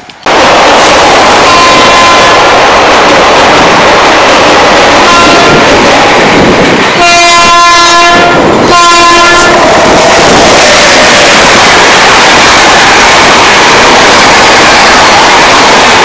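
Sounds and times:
loud rushing train noise: 0:00.0 - 0:16.0
train horn blasts: 0:01.5 - 0:02.4, 0:07.0 - 0:16.0.

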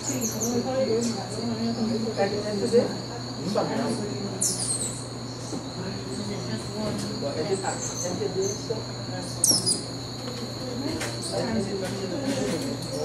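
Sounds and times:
birds warbling: 0:00.0 - 0:03.0, 0:03.9 - 0:06.5, 0:07.4 - 0:10.2
high insect drone: 0:00.0 - 0:13.0.

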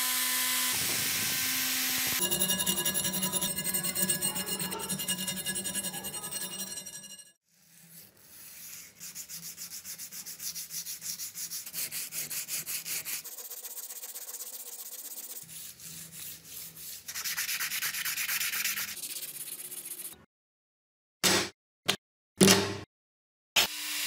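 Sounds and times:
sandpaper rubbing on metal blade: 0:02.2 - 0:20.2.

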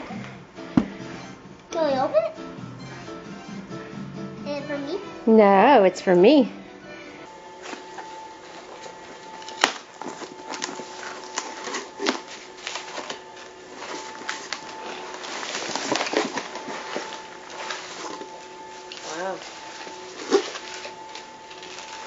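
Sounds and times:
cardboard and packaging rustling: 0:07.3 - 0:22.0.

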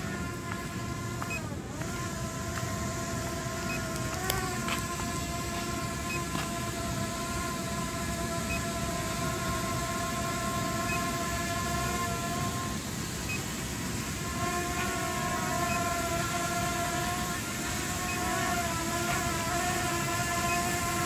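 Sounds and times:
drone propellers whining: 0:00.0 - 0:21.0
steady hiss: 0:00.0 - 0:21.0
faint short beeps: 0:15.6 - 0:15.9.

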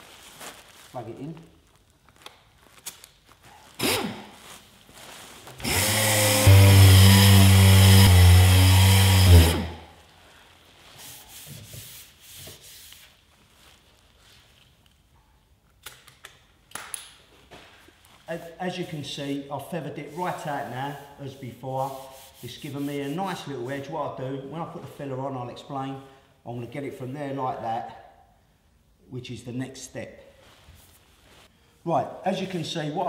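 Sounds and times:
orbital sander on metal: 0:05.6 - 0:09.8.

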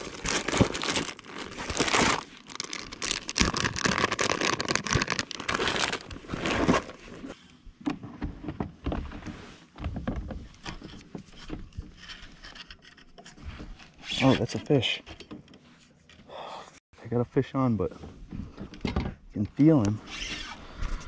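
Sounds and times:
plastic packets crinkling: 0:00.0 - 0:07.0.

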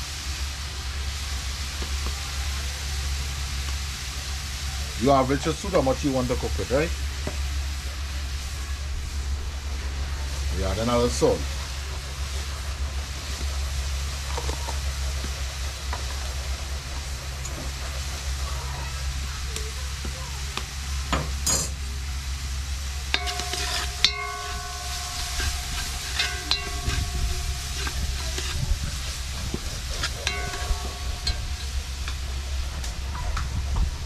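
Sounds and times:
oil sizzling: 0:00.0 - 0:34.0
steady low hum: 0:05.4 - 0:34.0
pot ringing: 0:23.0 - 0:33.3
spoon scraping metal pot: 0:23.1 - 0:32.8.

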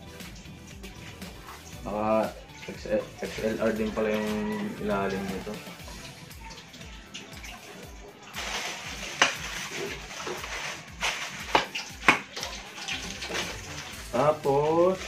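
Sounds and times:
plastic packaging crinkling: 0:08.4 - 0:14.2.

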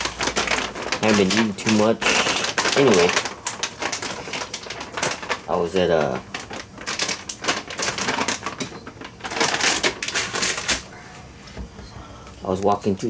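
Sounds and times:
rapid clicking and rattling: 0:06.2 - 0:10.8.

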